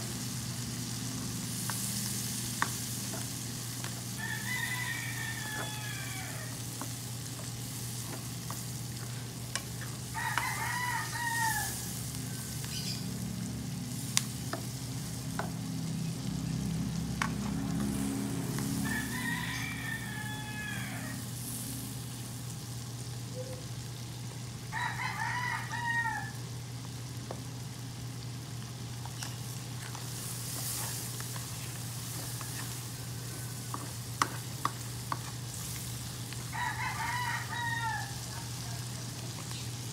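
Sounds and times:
sauce sizzling in a wok: 0:00.0 - 0:39.9
rooster crowing: 0:04.1 - 0:06.9, 0:09.5 - 0:13.0, 0:17.7 - 0:21.4, 0:24.7 - 0:26.5, 0:32.0 - 0:34.8, 0:36.3 - 0:38.6
spatula tapping a pan: 0:33.6 - 0:35.4.

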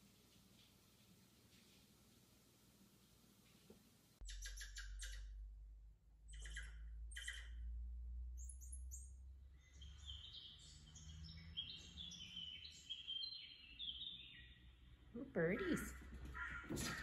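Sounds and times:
low steady hum: 0:00.0 - 0:10.2
recorded birdsong chirps and whistles: 0:04.2 - 0:05.4, 0:06.2 - 0:15.9.

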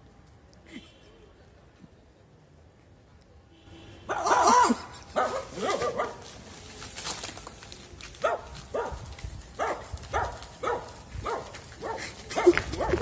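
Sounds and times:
dog barking: 0:04.1 - 0:04.6, 0:05.2 - 0:06.2, 0:08.2 - 0:09.0, 0:09.6 - 0:13.0.

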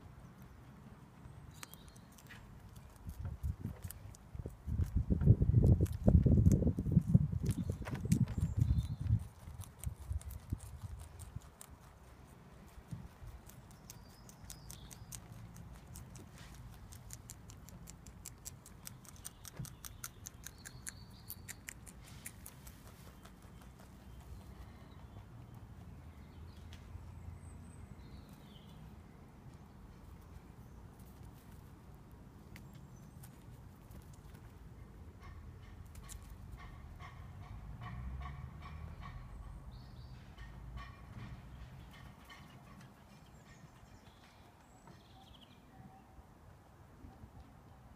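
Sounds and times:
rabbits chewing crunchily: 0:00.4 - 0:26.9, 0:28.2 - 0:35.2, 0:35.8 - 0:36.7.

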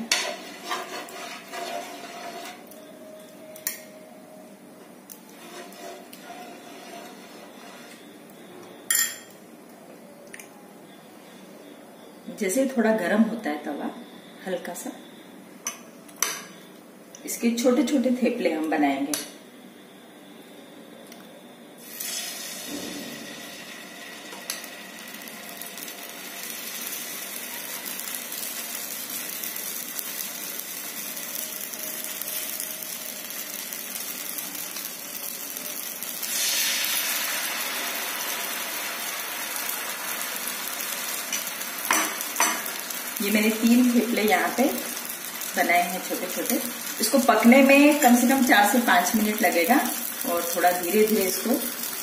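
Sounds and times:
batter sizzling on hot pan: 0:00.0 - 0:04.0, 0:05.0 - 0:09.2, 0:21.8 - 0:52.0.

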